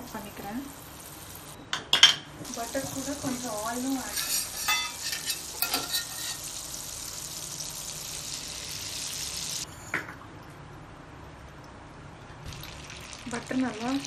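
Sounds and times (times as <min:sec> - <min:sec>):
butter and oil sizzling: 0:00.0 - 0:01.6, 0:02.3 - 0:09.7, 0:12.4 - 0:14.0.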